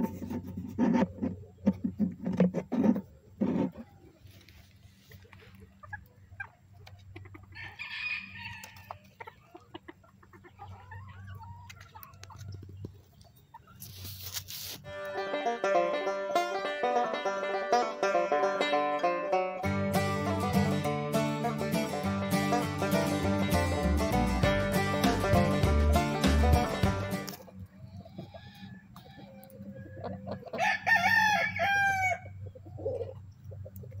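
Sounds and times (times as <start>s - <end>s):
chickens clucking: 0.0s - 34.0s
rooster crowing: 7.6s - 9.0s, 28.3s - 32.4s.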